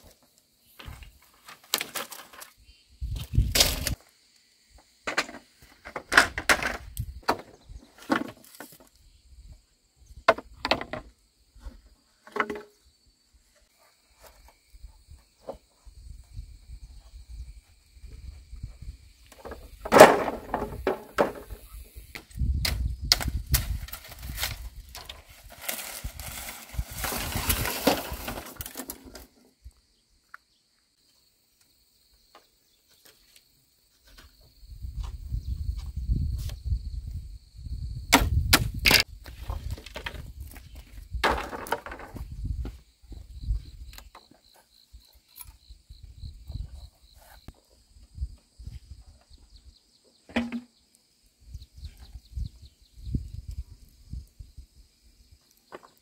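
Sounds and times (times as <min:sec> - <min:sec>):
bamboo poles clacking: 0:00.2 - 0:02.6, 0:05.1 - 0:08.9, 0:10.3 - 0:11.1, 0:12.2 - 0:12.8, 0:19.3 - 0:21.6, 0:22.2 - 0:29.4, 0:41.2 - 0:42.2, 0:50.3 - 0:50.7
dry leaf thatch rustling: 0:23.6 - 0:29.2.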